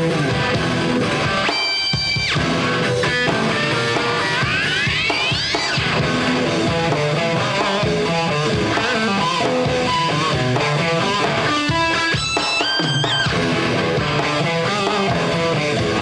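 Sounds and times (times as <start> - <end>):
electric guitar line: 0.0 - 16.0
bass part: 2.2 - 4.9, 5.8 - 11.5, 12.8 - 16.0.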